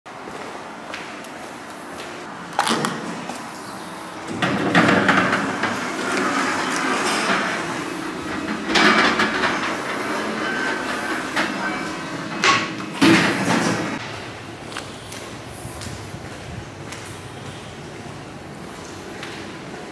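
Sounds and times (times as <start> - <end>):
elevator doors sliding: 2.7 - 14.7.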